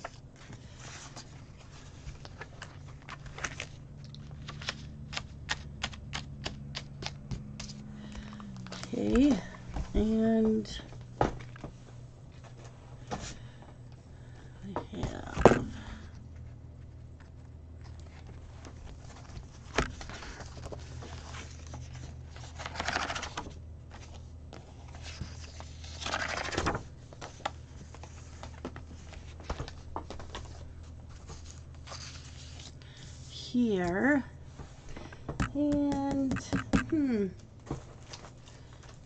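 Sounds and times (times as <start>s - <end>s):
paper sliding and rustling: 0.0s - 5.6s, 18.0s - 33.3s
faint low hum: 0.0s - 39.0s.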